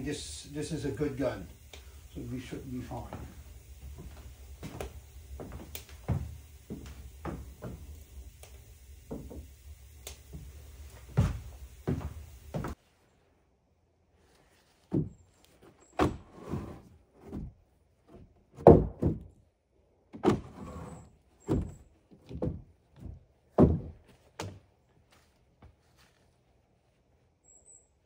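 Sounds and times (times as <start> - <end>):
irregular knocks and thuds: 2.9 - 12.8, 14.8 - 15.3, 16.0 - 19.4, 21.4 - 24.6.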